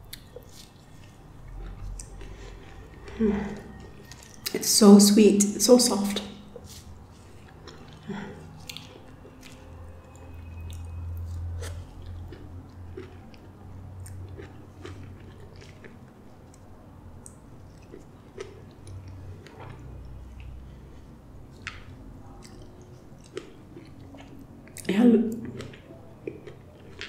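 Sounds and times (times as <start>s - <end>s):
person chewing soft fruit: 0.0s - 4.7s, 6.1s - 27.0s
low hum: 0.0s - 14.3s.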